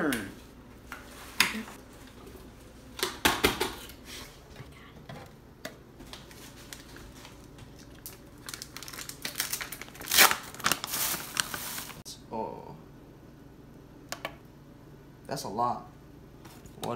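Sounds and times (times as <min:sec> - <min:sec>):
snack pouch crinkling: 0:06.2 - 0:12.0.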